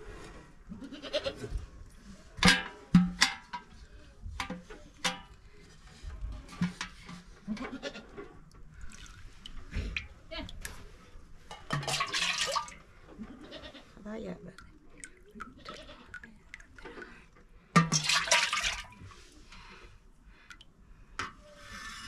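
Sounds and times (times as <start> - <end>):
metal pots clanking: 11.5 - 12.7
livestock bleating: 15.5 - 16.2.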